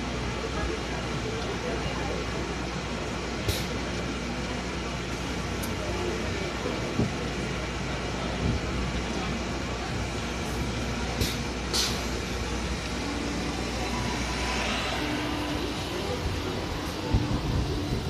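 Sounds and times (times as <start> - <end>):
bus systems humming: 0.0 - 18.0
short air hisses: 3.5 - 3.7, 11.2 - 12.2.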